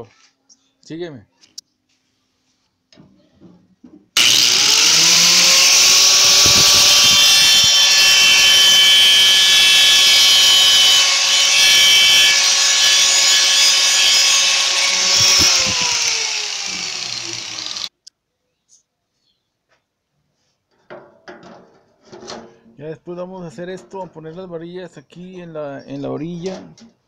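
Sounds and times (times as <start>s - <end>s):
angle grinder motor whine: 4.2s - 17.9s
grinding disc hissing on metal: 4.2s - 17.9s.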